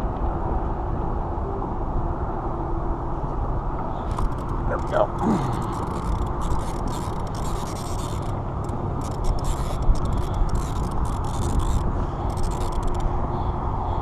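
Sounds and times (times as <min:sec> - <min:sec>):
steady low rumble: 0:00.0 - 0:14.0
fishing reel cranking: 0:04.0 - 0:13.2.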